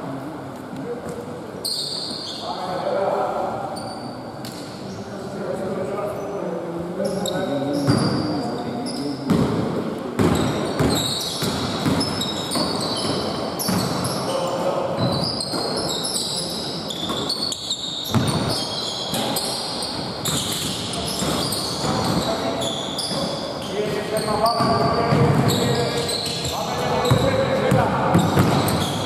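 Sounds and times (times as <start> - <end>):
sneakers squeaking on floor: 1.0 - 2.8, 3.6 - 5.0, 7.0 - 29.0
basketball bouncing: 10.2 - 14.1, 18.1 - 18.6, 24.6 - 25.6, 27.0 - 29.0.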